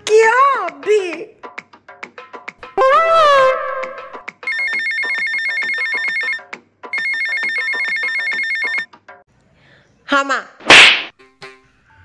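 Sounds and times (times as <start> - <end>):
phone ringtone: 4.4 - 8.9.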